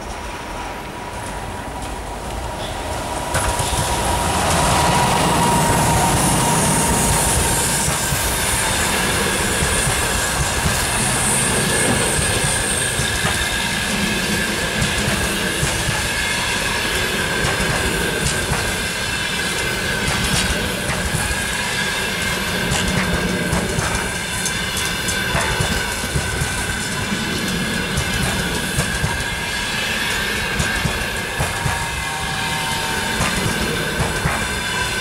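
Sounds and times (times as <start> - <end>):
train wheels rumbling on rail: 0.0 - 35.0
clacks over rail joints: 1.2 - 29.6, 30.3 - 32.1, 33.1 - 35.0.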